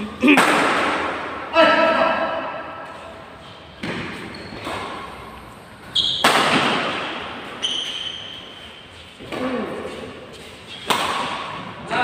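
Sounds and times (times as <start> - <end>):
racket hitting shuttlecock: 0.3 - 1.4, 3.8 - 8.4, 10.7 - 11.7
shoe squeaks on court floor: 4.1 - 6.4, 7.5 - 9.1.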